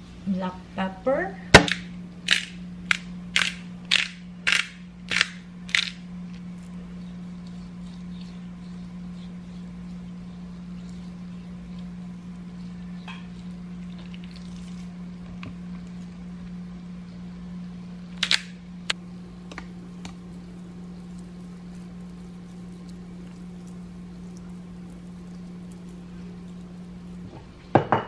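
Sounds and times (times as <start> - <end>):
steady low hum: 0.0 - 28.0
pepper grinder grinding: 1.7 - 6.7.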